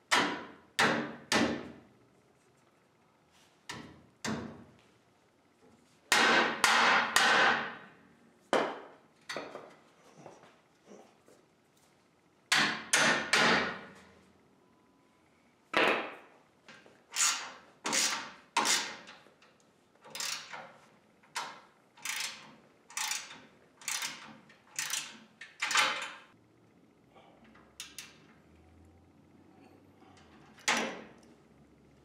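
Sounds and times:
ratchet wrench clicking: 0:17.1 - 0:19.1, 0:20.1 - 0:20.6, 0:22.0 - 0:26.0.

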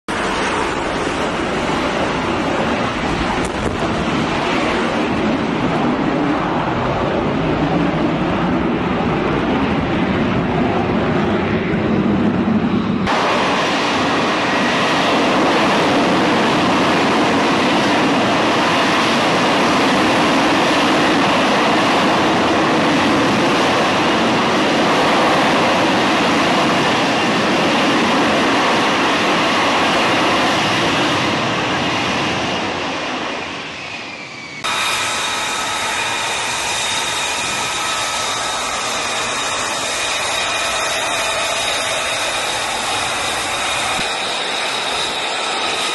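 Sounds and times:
jet engine roaring: 0:00.1 - 0:45.9
jet engines idling whine: 0:00.1 - 0:45.9.

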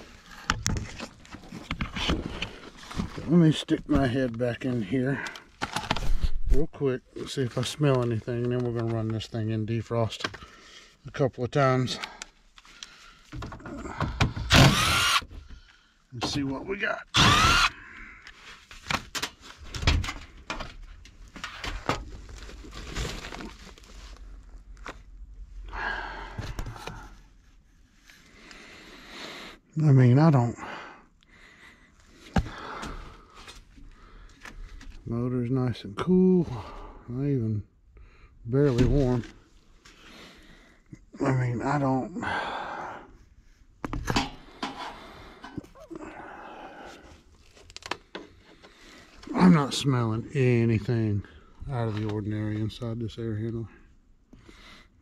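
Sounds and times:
rustling: 0:18.4 - 0:25.1
man breathing and sniffing: 0:25.5 - 0:29.7, 0:30.6 - 0:35.0, 0:39.4 - 0:41.1, 0:42.2 - 0:49.3.

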